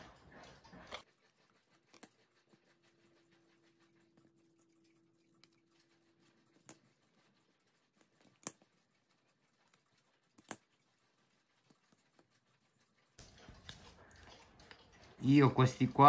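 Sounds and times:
scissors snipping leather: 6.6 - 6.8, 8.1 - 8.7, 10.4 - 10.7.

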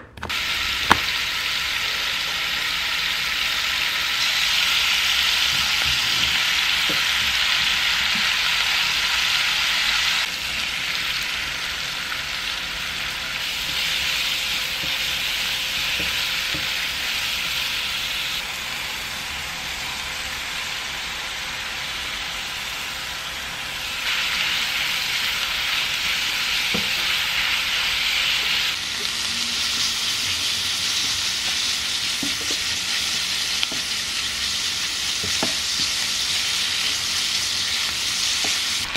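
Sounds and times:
meat and vegetables sizzling in oil: 0.2 - 38.9.

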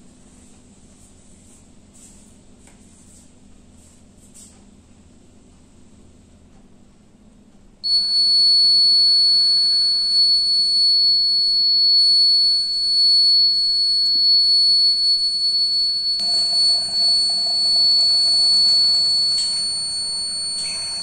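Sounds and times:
high-pitched alarm buzzer: 7.9 - 21.0.

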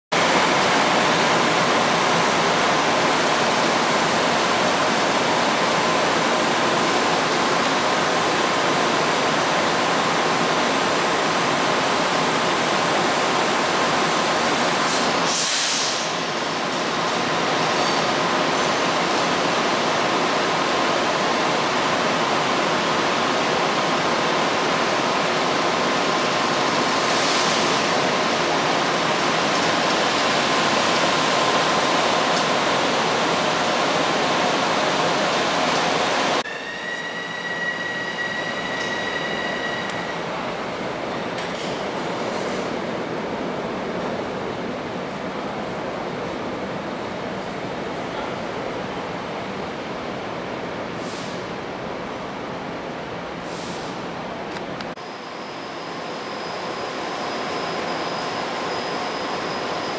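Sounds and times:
brief high hiss: 14.9 - 16.2, 53.5 - 54.0.

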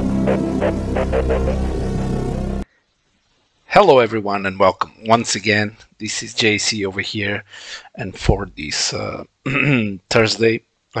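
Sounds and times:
low drone: 0.0 - 2.6
repeating pulse of notes: 0.0 - 2.6.

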